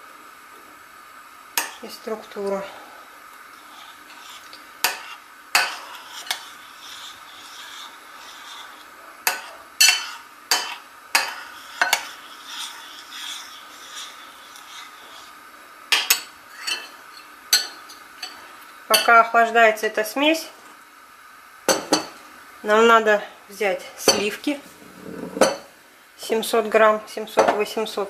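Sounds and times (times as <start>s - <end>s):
spoon scraping in bowl: 3.7s - 15.3s, 24.1s - 25.7s.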